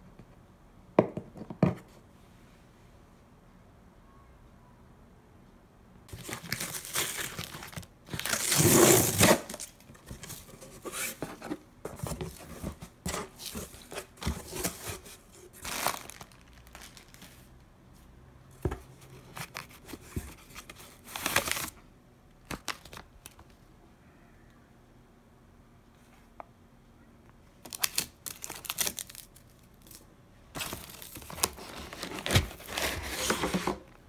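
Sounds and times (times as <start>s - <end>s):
cardboard and plastic rustling: 6.1s - 17.5s, 18.6s - 21.8s, 27.6s - 34.0s
packing tape ripping: 6.2s - 9.7s, 27.7s - 30.0s.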